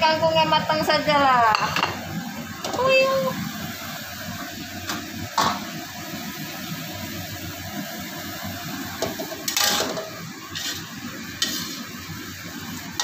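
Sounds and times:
vegetables frying in a wok: 0.0 - 13.0
metal spatula scraping a pan: 9.5 - 11.9.

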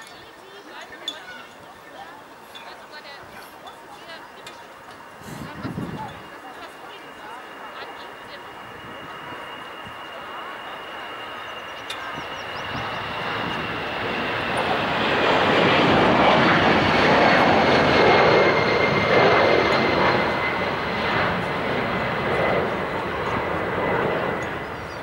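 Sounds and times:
airplane passing overhead: 0.0 - 25.0.

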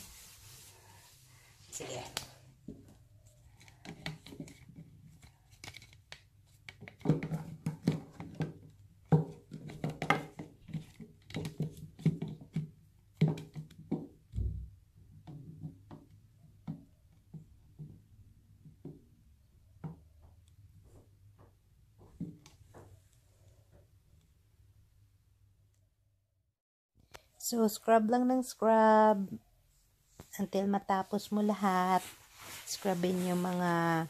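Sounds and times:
brush scrubbing a bath: 0.0 - 1.9, 30.7 - 34.0.

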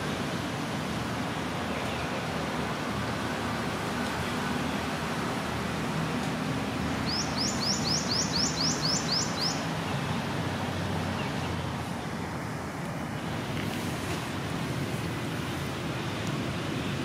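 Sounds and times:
small bird chirping: 7.0 - 10.0.

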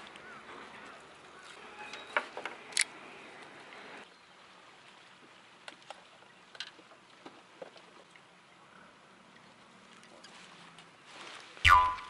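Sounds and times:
water lapping: 2.9 - 12.0.

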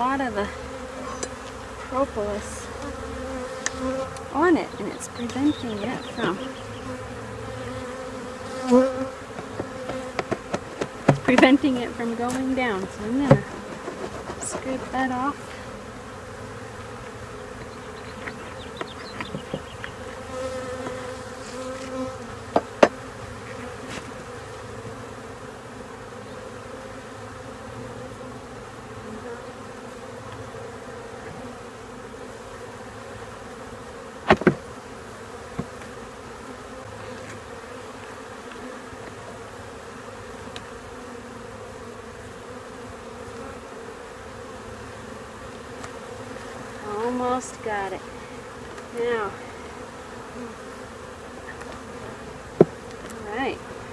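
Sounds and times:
honeybees buzzing: 0.0 - 53.9
wooden frames knocking and scraping: 9.3 - 11.7, 12.3 - 15.2, 18.2 - 19.7.

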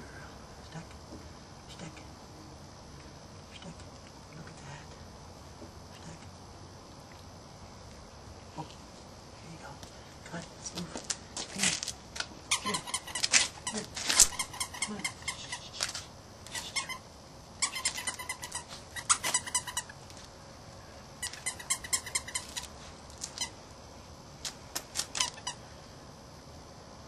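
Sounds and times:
puppies squeaking: 12.5 - 20.0, 21.2 - 23.5.

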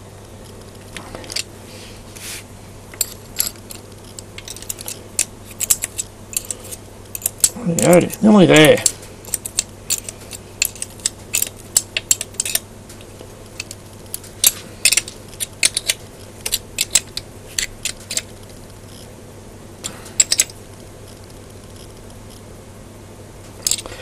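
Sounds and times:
spanners clicking against metal: 3.0 - 12.6.

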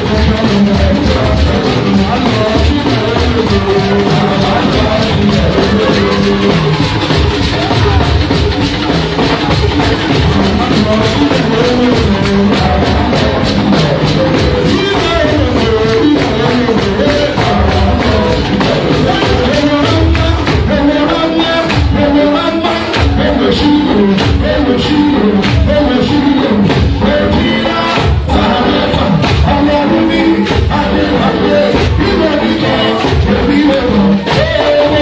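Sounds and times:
congregation singing: 0.0 - 35.0
percussion beat: 0.0 - 35.0
hand-clapping: 1.8 - 26.8.

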